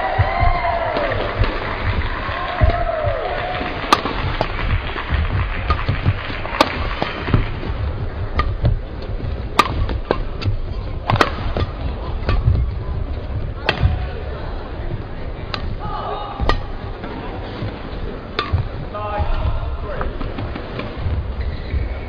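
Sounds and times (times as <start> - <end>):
rackets striking shuttlecock: 0.0 - 21.9
hall rumble: 0.0 - 22.0
shoes squeaking on court: 20.1 - 22.0.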